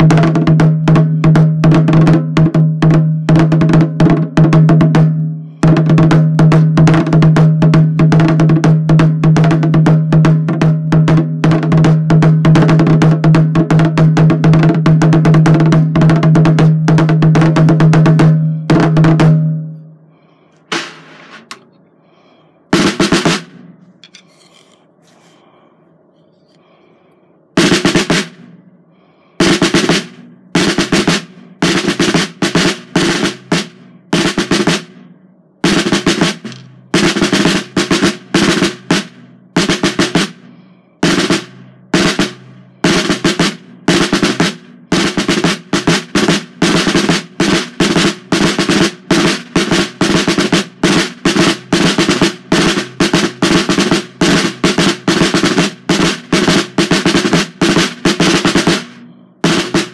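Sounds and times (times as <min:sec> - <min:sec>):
drum roll with drumsticks: 0:00.0 - 0:19.6, 0:20.7 - 0:21.6, 0:22.7 - 0:24.7, 0:27.6 - 0:28.6, 0:29.4 - 0:35.0, 0:35.6 - 0:40.4, 0:41.0 - 0:59.9
drum head ringing: 0:22.8 - 0:24.2, 0:59.4 - 0:59.9.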